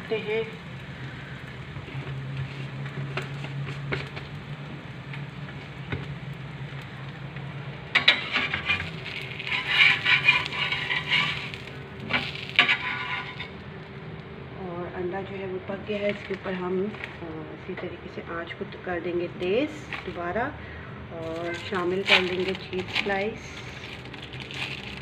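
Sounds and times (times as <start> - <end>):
frying sizzle: 0.0 - 14.2, 21.2 - 25.0
steady low hum: 0.0 - 24.3
metal spatula scraping frying pan: 8.0 - 13.6.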